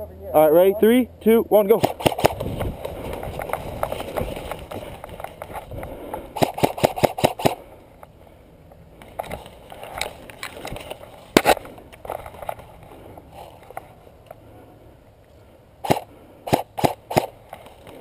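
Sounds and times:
sharp snaps: 1.7 - 2.7, 5.8 - 7.6, 15.8 - 18.0.

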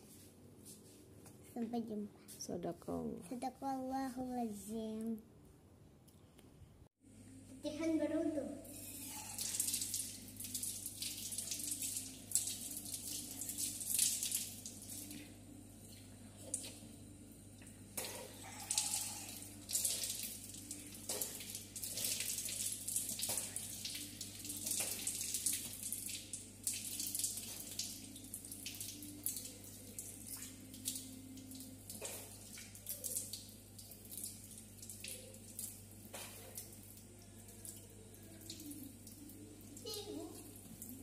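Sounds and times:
water running from tap: 8.8 - 41.0
water splashing on tiled floor: 9.1 - 16.9, 17.6 - 41.0.

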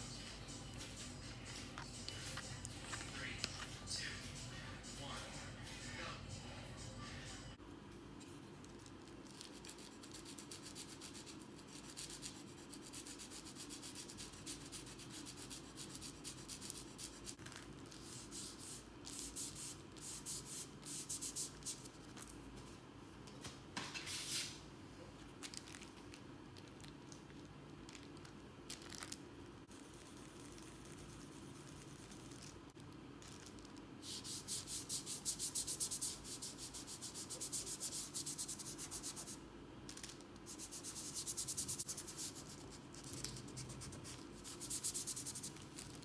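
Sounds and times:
fingers rubbing pastel on paper: 34.0 - 39.4, 40.5 - 45.7.

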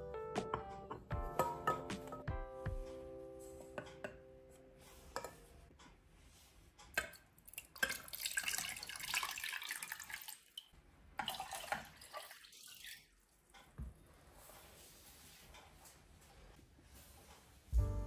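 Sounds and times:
water pouring into metal saucepan: 7.5 - 13.1.

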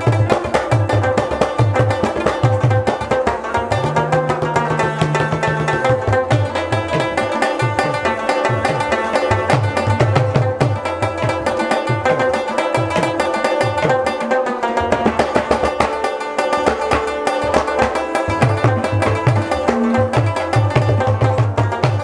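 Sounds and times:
instrumental music with fast drums: 0.0 - 22.0.

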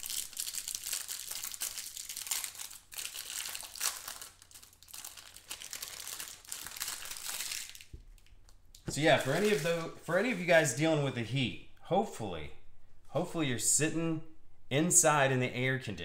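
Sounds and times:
plastic wrapper crinkling: 0.0 - 10.6.

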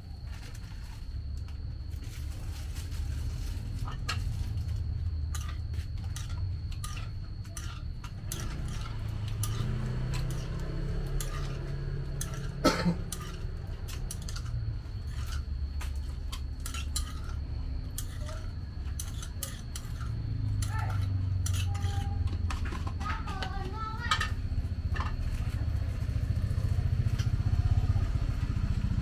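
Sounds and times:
spoon scraping stone mortar: 3.8 - 24.4.

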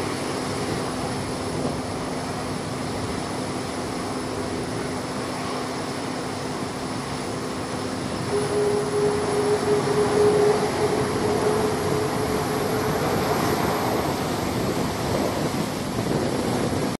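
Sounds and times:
jet engines at taxi power: 0.0 - 17.0
held tone: 8.3 - 15.1.

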